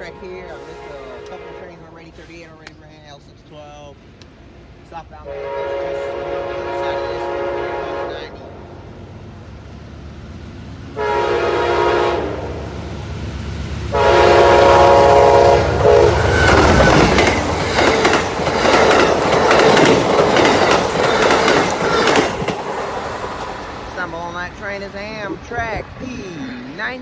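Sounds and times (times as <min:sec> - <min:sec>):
locomotive horn blasts: 0:00.0 - 0:02.0, 0:05.3 - 0:08.5, 0:11.0 - 0:12.7, 0:13.9 - 0:17.2
train passing rumble: 0:00.0 - 0:27.0
wheels clacking over rail joints: 0:16.1 - 0:26.0.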